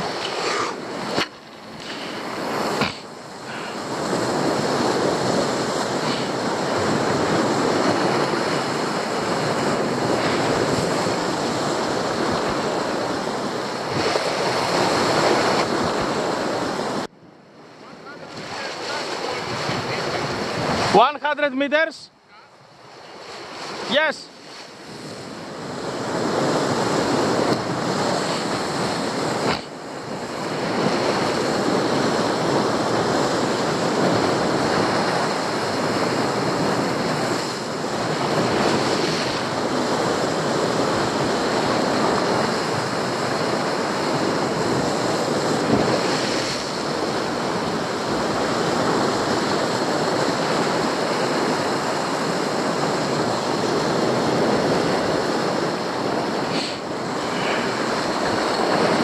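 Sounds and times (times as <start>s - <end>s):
surf breaking on rocky shore: 0.0s - 17.1s, 17.8s - 21.8s, 22.7s - 59.0s
wind buffeting microphone: 18.1s - 21.0s.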